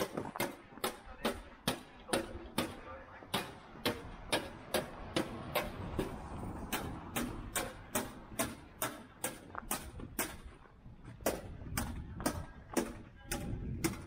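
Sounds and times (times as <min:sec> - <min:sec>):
footsteps walking: 0:09.2 - 0:13.1.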